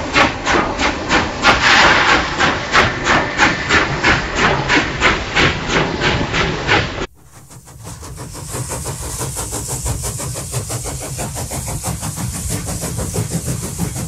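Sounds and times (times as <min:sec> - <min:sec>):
engine idling: 0:07.1 - 0:14.0.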